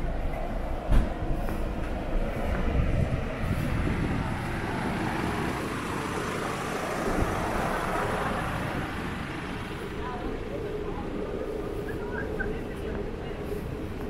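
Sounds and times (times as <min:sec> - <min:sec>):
city street ambience: 0:00.0 - 0:14.0
vehicle passing rumble: 0:00.0 - 0:14.0.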